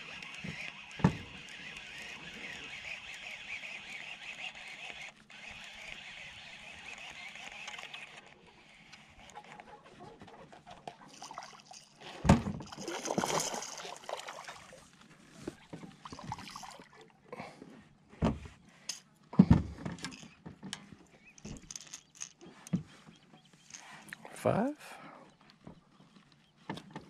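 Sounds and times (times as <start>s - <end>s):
water splashing and sloshing: 10.8s - 17.2s.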